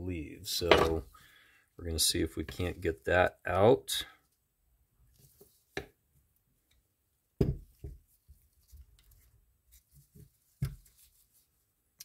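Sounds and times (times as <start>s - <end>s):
sharp knocks on bench: 7.4s - 8.0s.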